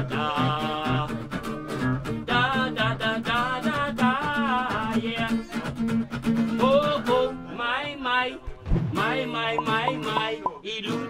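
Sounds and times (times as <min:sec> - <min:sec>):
plucked guitar with steady beat: 0:00.0 - 0:07.6, 0:08.3 - 0:11.0
person singing: 0:07.5 - 0:11.0.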